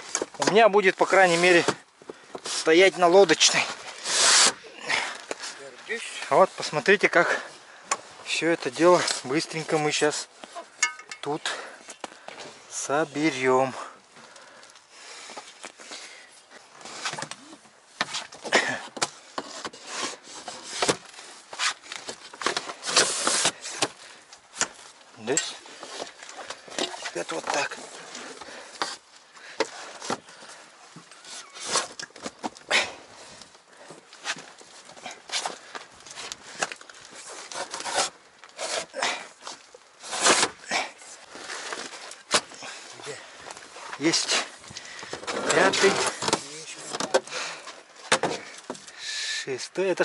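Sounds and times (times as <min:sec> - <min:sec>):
metal edges knocking and clacking: 0:10.8 - 0:11.3.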